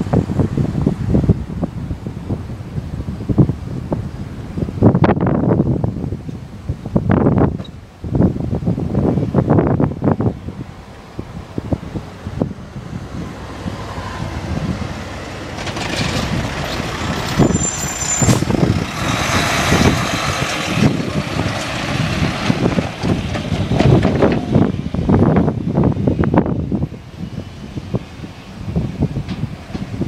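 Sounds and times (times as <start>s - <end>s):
wind buffeting microphone: 0.0s - 30.0s
large trucks driving past: 10.5s - 30.0s
high squeal: 16.7s - 19.8s.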